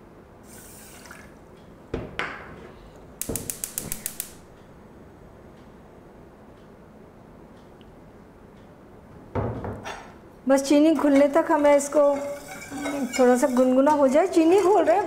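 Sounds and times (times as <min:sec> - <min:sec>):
burner knob turning: 0:03.2 - 0:04.4
spark igniter clicking rapidly: 0:03.2 - 0:04.5.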